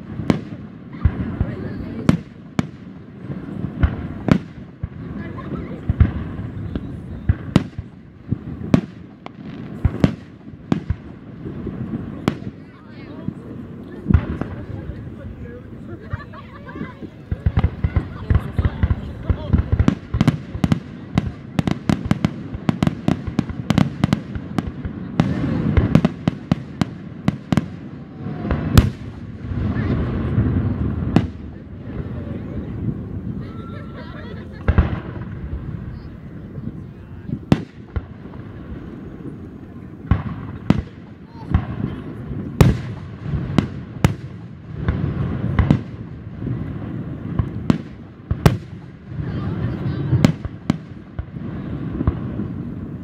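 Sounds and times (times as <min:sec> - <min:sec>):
fireworks popping and banging: 0:00.0 - 0:53.0.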